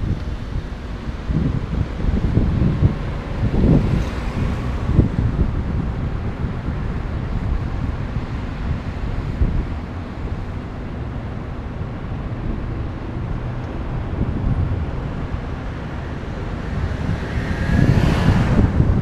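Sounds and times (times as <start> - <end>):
road noise: 0.0 - 19.0
wind buffeting microphone: 0.0 - 19.0
car passing by: 2.2 - 7.6, 14.3 - 19.0.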